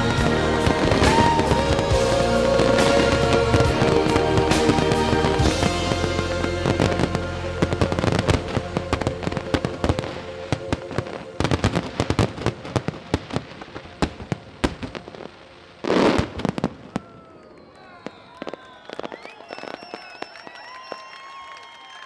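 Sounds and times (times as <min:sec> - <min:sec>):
sustained music chord: 0:00.0 - 0:11.8
fireworks bangs and crackling: 0:00.0 - 0:21.1.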